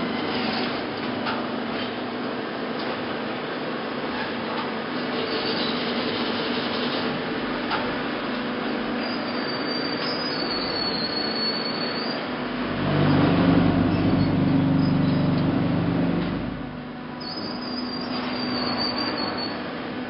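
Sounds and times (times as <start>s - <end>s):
machinery running: 12.3s - 17.1s
loud tonal hum: 12.3s - 18.1s.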